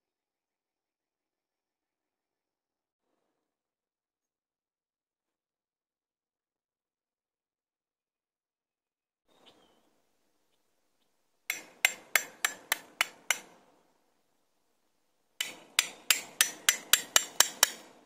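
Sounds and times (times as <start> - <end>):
hand tool blows: 11.5 - 13.7, 15.4 - 18.0.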